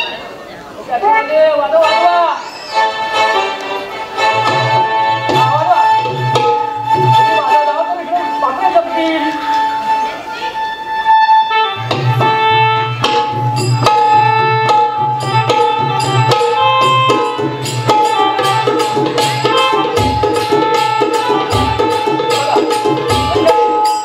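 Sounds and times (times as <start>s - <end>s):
held melodic tone: 1.6s - 24.0s
hand drums: 4.2s - 7.6s, 11.8s - 24.0s.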